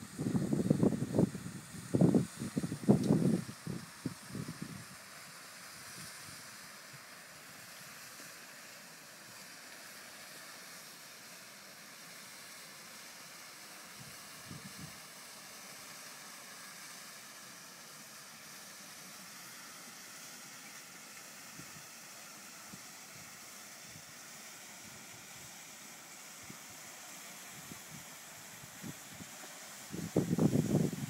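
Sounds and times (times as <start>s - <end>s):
background hiss: 0.0s - 31.0s.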